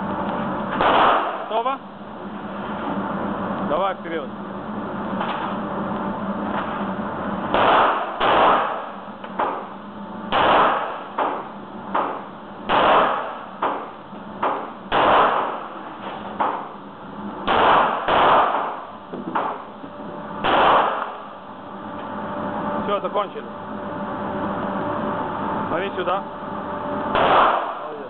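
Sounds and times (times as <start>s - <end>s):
pistol shots ringing indoors: 0.7s - 1.6s, 7.5s - 9.6s, 10.3s - 16.7s, 17.4s - 19.6s, 20.4s - 21.3s, 27.1s - 28.0s
fainter sharp cracks: 7.5s - 9.6s, 20.4s - 21.2s.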